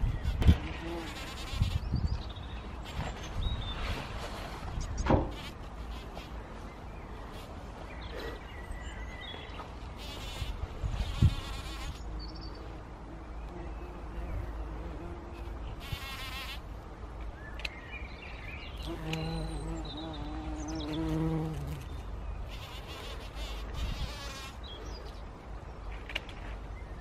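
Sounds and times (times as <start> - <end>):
bumblebee buzzing in flight: 0.0 - 2.1, 10.0 - 12.8, 13.5 - 16.6, 18.8 - 24.6.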